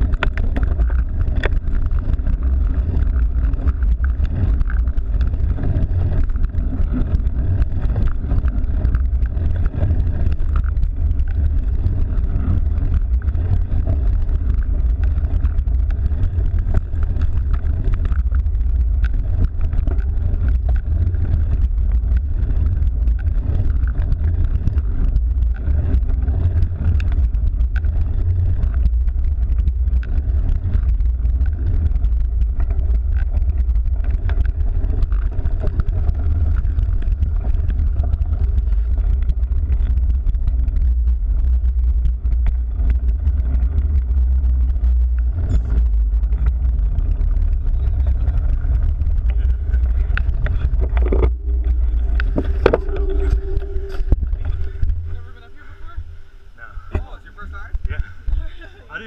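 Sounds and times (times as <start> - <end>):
bike tyre road noise: 0.0 - 59.0
wind rumble on microphone: 0.0 - 59.0.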